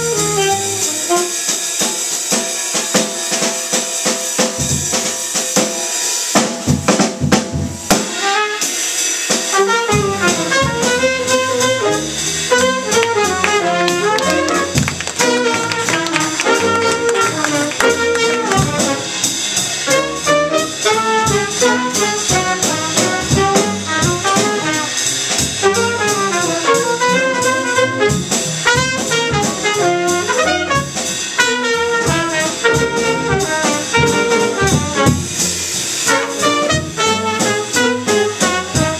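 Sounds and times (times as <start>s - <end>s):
upright bass: 0.0s - 1.0s, 9.9s - 38.9s
saxophone melody: 0.0s - 1.5s, 9.8s - 25.0s, 25.6s - 35.2s, 36.1s - 38.9s
drum kit fill: 0.0s - 38.9s
piano: 0.0s - 38.9s.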